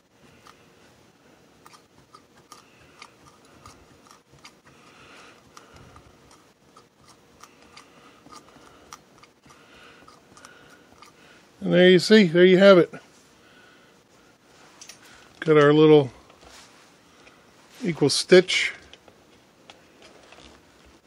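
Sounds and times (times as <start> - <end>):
soft cloth rustle: 14.1 - 15.5, 16.2 - 18.1.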